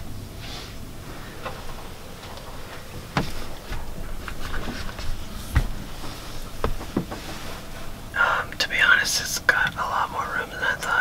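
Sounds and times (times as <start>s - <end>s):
rustling: 0.4s - 8.2s
sharp knocks and bumps: 3.0s - 7.7s.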